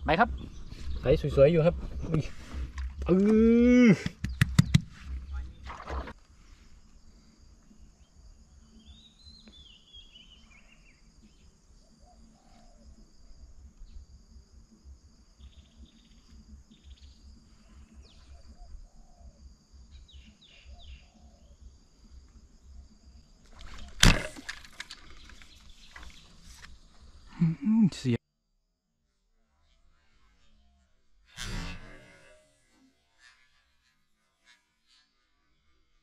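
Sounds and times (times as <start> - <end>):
faint birds chirping: 0.0 - 28.2.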